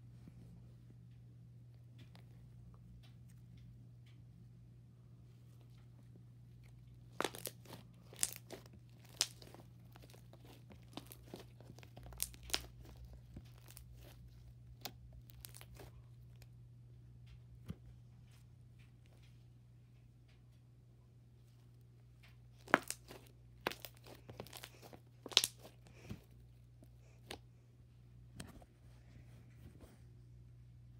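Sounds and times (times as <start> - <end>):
steady low hum: 0.0 - 30.9
slime crackling and popping: 7.1 - 15.9, 22.5 - 26.2.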